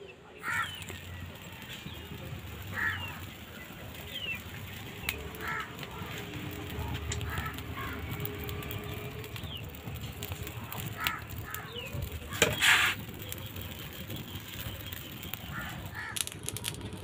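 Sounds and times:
fire rumbling and crackling: 0:00.0 - 0:17.0
crow-like caws: 0:00.4 - 0:00.8, 0:02.7 - 0:03.2, 0:05.3 - 0:05.8, 0:07.2 - 0:08.0, 0:11.0 - 0:11.7, 0:15.5 - 0:16.3.

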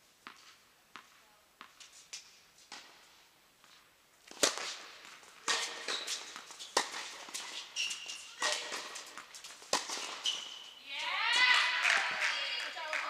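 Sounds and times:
ball bouncing: 0:04.3 - 0:13.0
rackets striking tennis ball: 0:04.3 - 0:13.0
short high squeaks: 0:05.6 - 0:08.9, 0:10.0 - 0:10.8.

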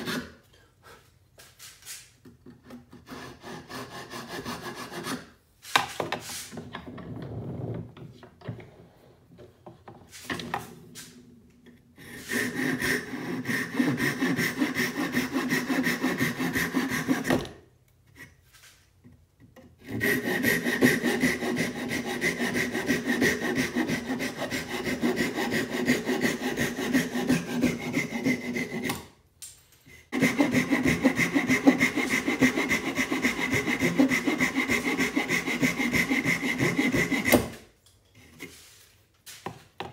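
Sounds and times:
hand saw cutting wood: 0:00.0 - 0:00.4, 0:02.5 - 0:05.4, 0:12.0 - 0:17.6, 0:19.8 - 0:29.2, 0:30.1 - 0:38.6.

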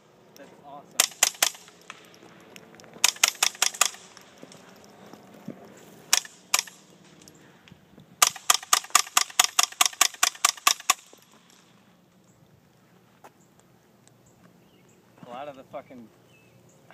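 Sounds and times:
suppressed rifle shots: 0:01.0 - 0:02.2, 0:03.0 - 0:04.5, 0:06.1 - 0:06.9, 0:08.2 - 0:11.2.

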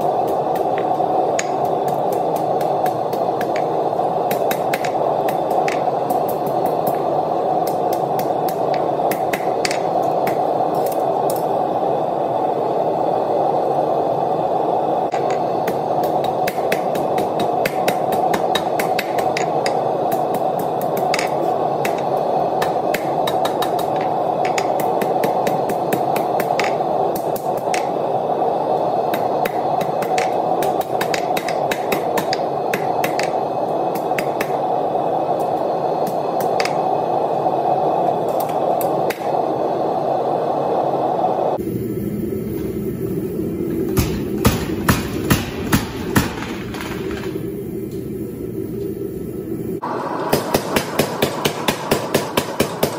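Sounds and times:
hammer striking hot metal on anvil: 0:00.0 - 0:07.0, 0:07.6 - 0:11.4, 0:15.1 - 0:28.0, 0:29.1 - 0:34.6, 0:44.0 - 0:46.7, 0:50.3 - 0:52.9
steady rushing noise: 0:00.0 - 0:42.0.

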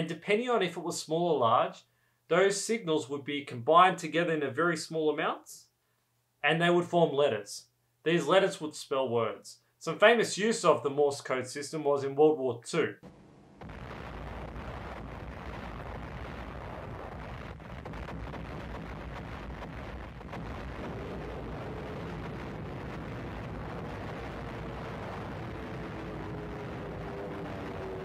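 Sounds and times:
explosions and gunfire: 0:13.6 - 0:27.6.

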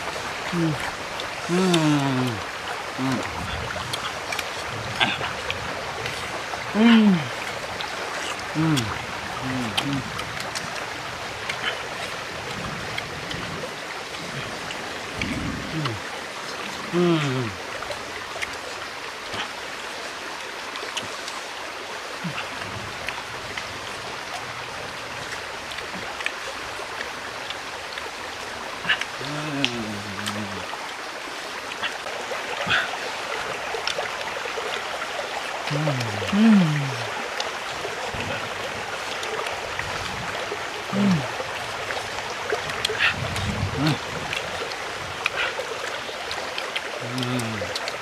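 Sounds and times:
stream running over rocks: 0:00.0 - 0:48.0
faint clicks of fruit peeling: 0:00.4 - 0:06.3, 0:07.3 - 0:17.3, 0:20.7 - 0:21.6, 0:25.2 - 0:28.1, 0:28.8 - 0:30.6, 0:33.7 - 0:34.9, 0:35.6 - 0:38.3, 0:41.9 - 0:48.0.

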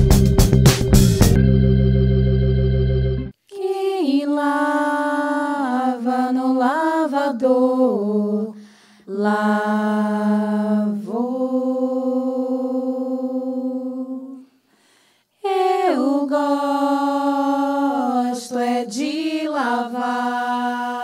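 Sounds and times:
women singing a cappella: 0:03.5 - 0:14.6, 0:15.4 - 0:21.0.

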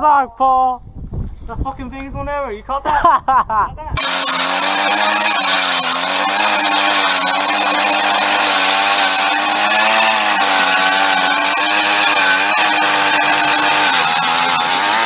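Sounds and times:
ice auger engine running: 0:04.0 - 0:15.0.

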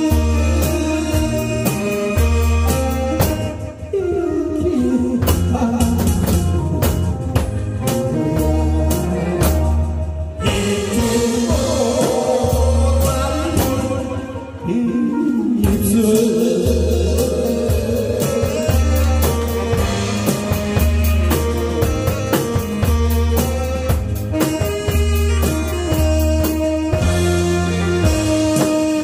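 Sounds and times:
man singing into a microphone: 0:00.0 - 0:07.2, 0:07.8 - 0:19.8
bass: 0:00.0 - 0:29.0
drum kit steady beat: 0:00.0 - 0:29.0.

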